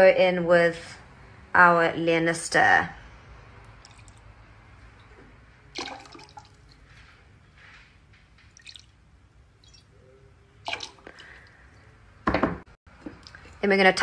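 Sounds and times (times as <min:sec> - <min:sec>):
liquid dripping in a glass: 0:08.5 - 0:09.0, 0:09.6 - 0:09.9, 0:10.6 - 0:11.5.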